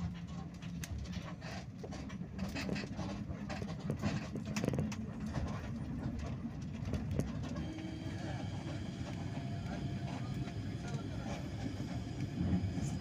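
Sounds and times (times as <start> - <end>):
bus body rattling and knocking: 1.4 - 7.6
bus engine droning: 4.1 - 13.0.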